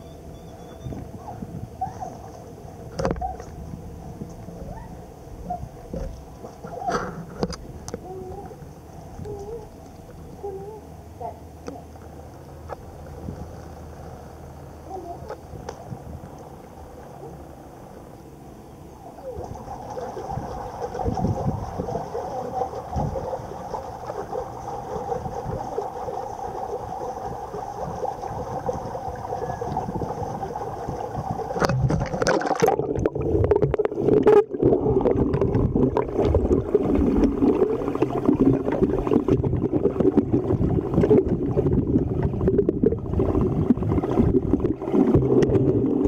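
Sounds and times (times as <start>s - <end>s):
steady hum: 0.0s - 46.0s
underwater gurgling and churning: 0.0s - 46.0s
light water sounds: 0.8s - 46.0s
splash: 19.3s - 41.4s.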